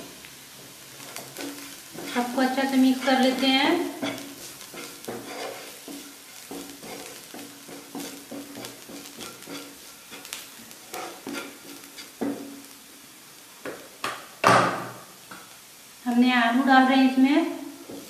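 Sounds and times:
spatula scraping frying pan: 0.0s - 12.8s
onions sizzling in oil: 0.0s - 18.0s
sharp knock on pan: 13.7s - 15.0s.

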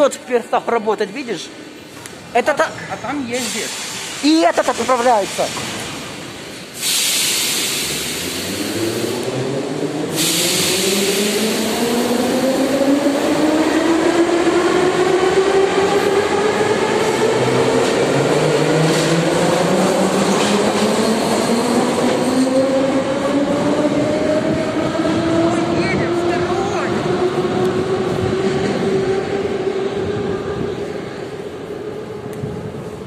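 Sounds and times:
loud air hiss: 3.3s - 9.3s, 10.0s - 11.9s.

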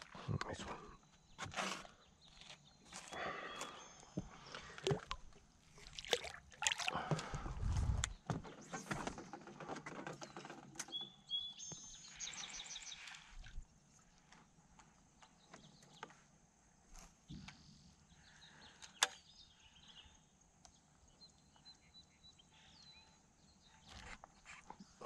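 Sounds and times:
water splashes: 4.6s - 7.4s.

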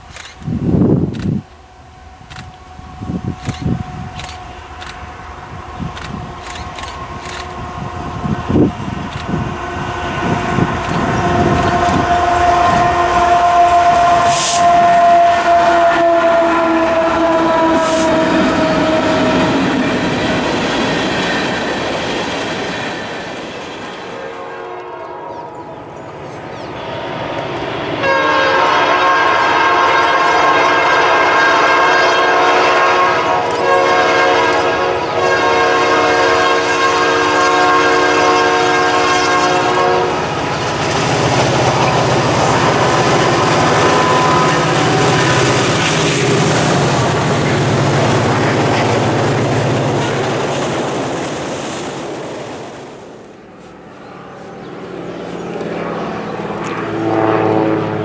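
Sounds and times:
train rolling past: 0.0s - 58.0s
locomotive horn blasts: 1.9s - 20.6s, 24.1s - 25.7s, 28.0s - 48.6s, 53.5s - 58.0s.

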